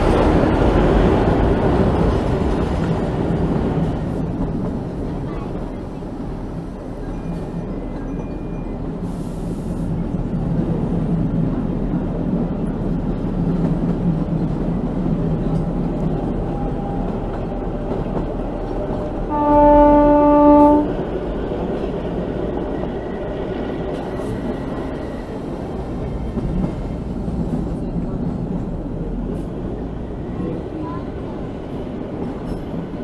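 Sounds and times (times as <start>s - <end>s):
train wheels rumbling: 0.0s - 33.0s
locomotive horn: 19.3s - 21.0s.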